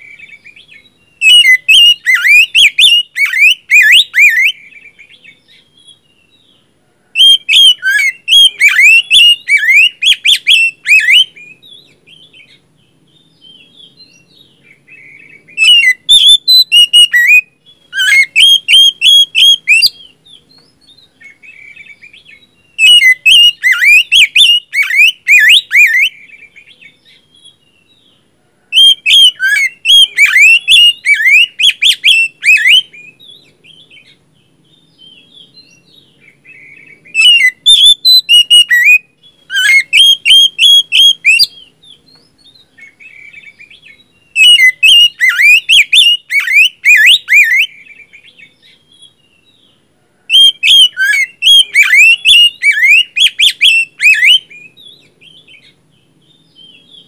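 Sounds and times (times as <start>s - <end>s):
bird singing whistled phrases: 0.0s - 6.4s, 7.2s - 12.6s, 13.2s - 27.9s, 28.7s - 49.6s, 50.3s - 55.7s.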